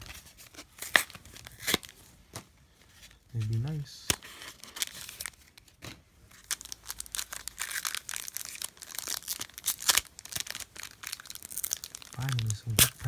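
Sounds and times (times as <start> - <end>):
foil wrapper crinkling: 3.4 - 13.0.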